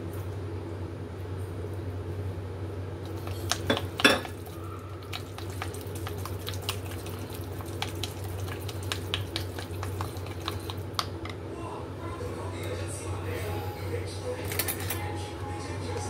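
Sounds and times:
steady low hum: 0.0 - 16.0
chopsticks ticking against bowl: 7.7 - 11.3.

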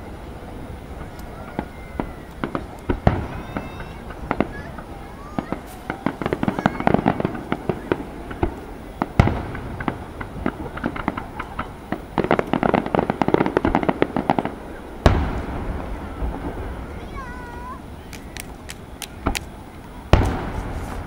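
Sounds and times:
fireworks heavy booms: 0.0 - 21.0
fireworks popping: 0.0 - 21.0.

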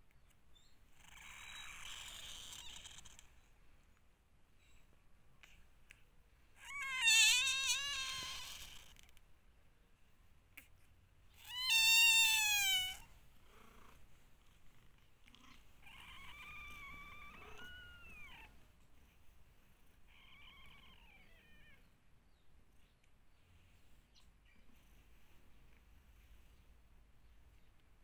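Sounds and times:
newborn kitten mewing: 6.6 - 9.0, 11.3 - 13.2, 15.4 - 18.5.

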